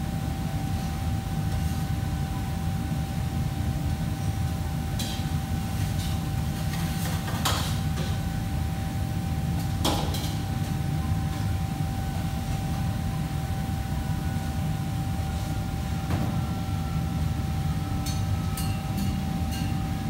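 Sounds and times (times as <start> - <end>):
faint hum: 8.0 - 20.0.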